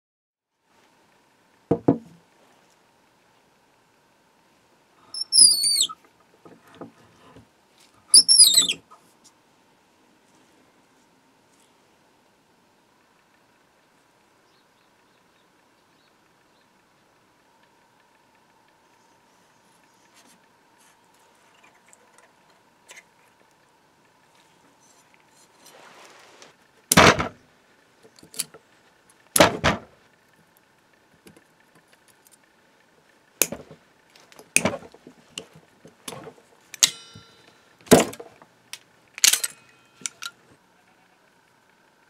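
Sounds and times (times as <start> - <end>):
faint scraping: 24.3 - 26.6
metallic clicks and clinks: 39.2 - 40.4.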